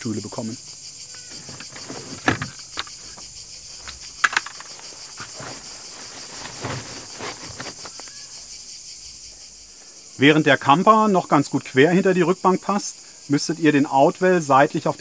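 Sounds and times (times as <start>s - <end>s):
cicadas shrilling: 0.0s - 15.0s
chair frames knocking: 1.2s - 5.7s
fabric rustling: 1.2s - 8.5s.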